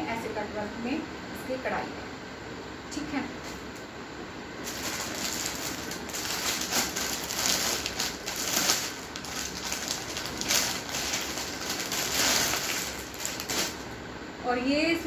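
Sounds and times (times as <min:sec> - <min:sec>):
garments and packaging rustling: 0:04.6 - 0:14.0.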